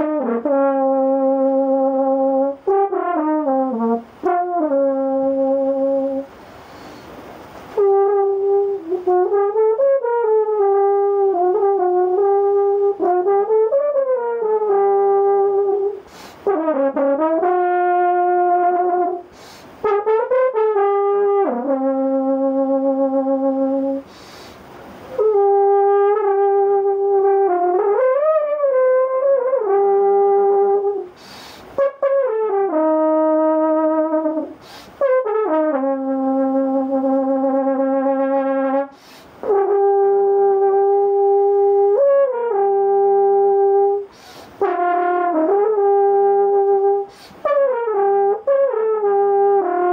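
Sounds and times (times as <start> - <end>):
horn playing jazzy improvisation: 0.0 - 49.9
player taking breath: 6.4 - 7.3, 16.0 - 16.5, 19.3 - 19.8, 24.0 - 24.8, 31.1 - 31.8, 34.6 - 35.0, 38.9 - 39.4, 44.1 - 44.6, 47.1 - 47.4.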